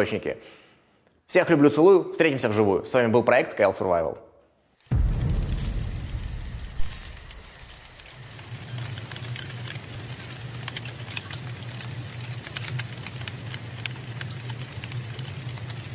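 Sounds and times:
scattered crackles and clicks: 4.8 - 15.9
sharp glitch-like hit: 4.9 - 8.4
low steady hum: 4.9 - 10.2.

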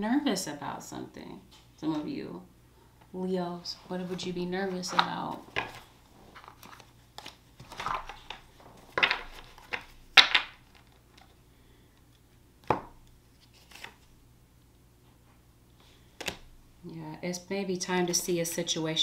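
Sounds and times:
cards swishing and slapping: 13.4 - 14.1.

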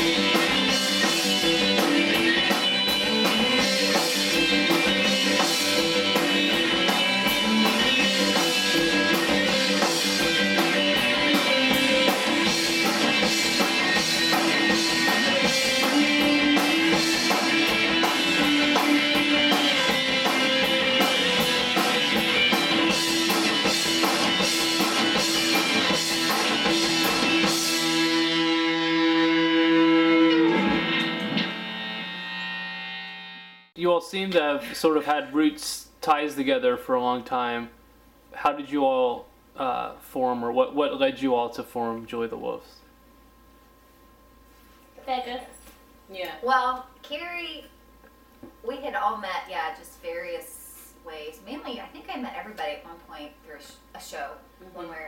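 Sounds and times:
drum kit with cymbal beats: 0.0 - 31.9
electric bass: 0.0 - 33.7
electric guitars: 0.0 - 33.7.

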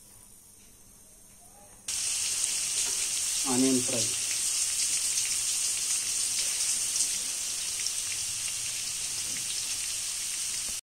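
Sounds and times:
oil crackles and pops: 1.9 - 10.8
onions sizzling in hot oil: 1.9 - 10.8.

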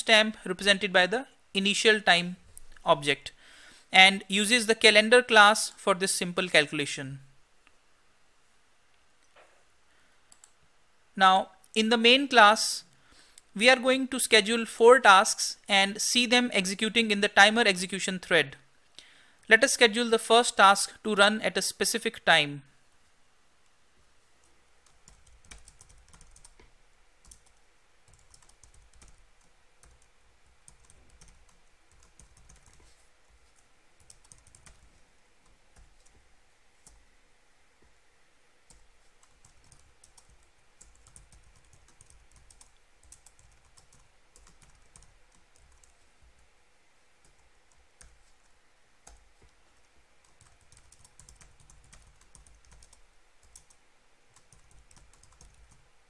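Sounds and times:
typing on a keyboard: 24.8 - 32.9, 34.0 - 36.2, 38.7 - 46.0, 50.2 - 55.8.

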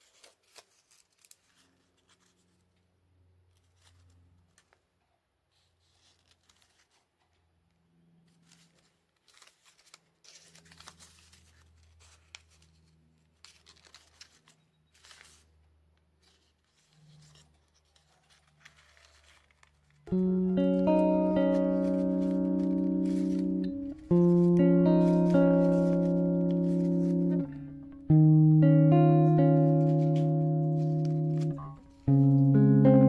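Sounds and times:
paper rustling and crinkling: 0.0 - 2.9, 3.5 - 4.9, 5.5 - 28.1, 28.9 - 32.6
acoustic guitar music: 20.1 - 33.0.

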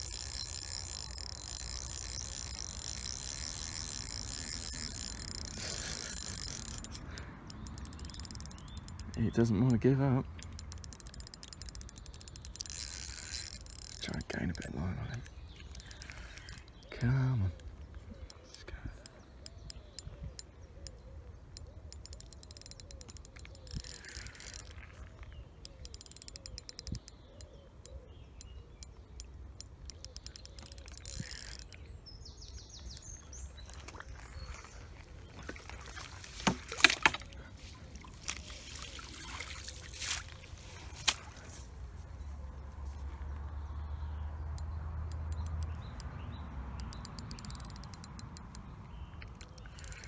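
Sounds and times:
fishing reel ratcheting clicks: 0.0 - 17.0, 21.6 - 24.8, 25.6 - 27.5, 28.8 - 31.8, 46.8 - 50.0.

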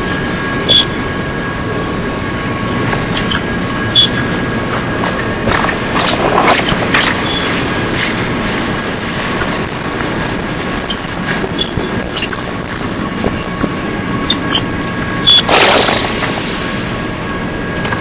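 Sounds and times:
high wheel squeals: 0.0 - 1.2, 3.2 - 4.3, 6.6 - 7.8, 8.5 - 15.5
train wheels rumbling on rail: 0.0 - 18.0.

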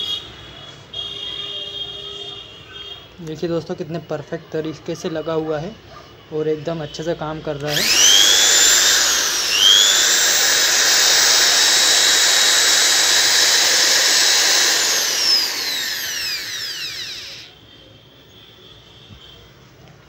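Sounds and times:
electric drill motor whining: 7.7 - 17.5.

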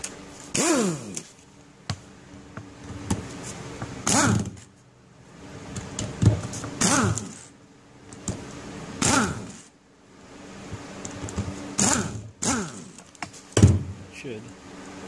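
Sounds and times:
pneumatic air tool bursts: 0.5 - 1.3, 4.0 - 4.6, 6.8 - 7.5, 9.0 - 9.7, 11.8 - 13.1.

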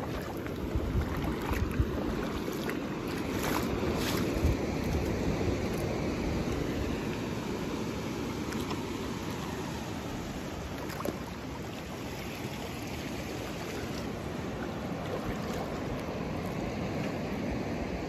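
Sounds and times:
wind rumble on microphone: 0.0 - 8.8.

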